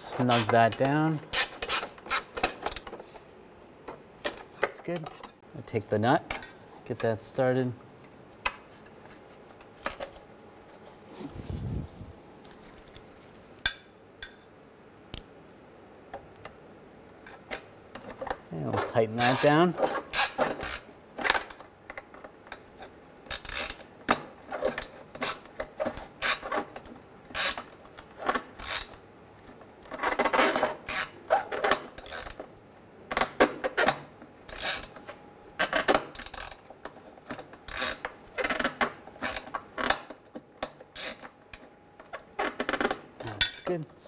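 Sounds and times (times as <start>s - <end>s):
hand ratchet clicking: 37.7s - 38.1s.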